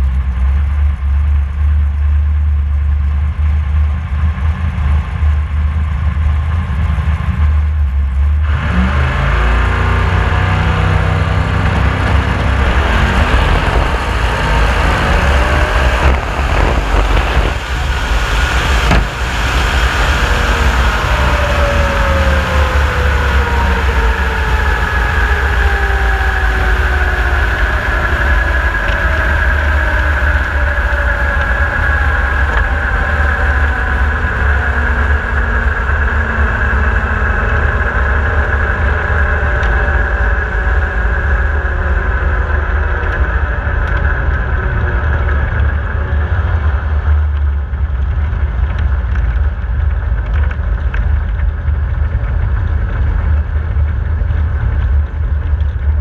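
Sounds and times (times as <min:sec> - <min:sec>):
race car engine running: 0:00.0 - 0:56.0
wind rumble on microphone: 0:00.0 - 0:56.0.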